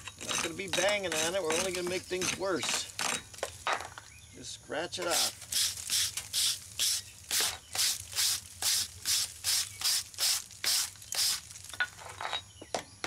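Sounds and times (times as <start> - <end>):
wire brush scrubbing concrete: 0.2 - 2.9, 5.1 - 11.6.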